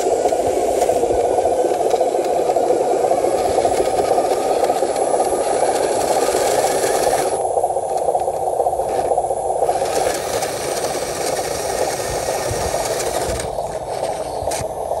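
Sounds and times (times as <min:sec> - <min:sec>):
electric motor and gearbox running: 0:00.0 - 0:15.0
gritty rattle over loose dirt: 0:08.8 - 0:14.7.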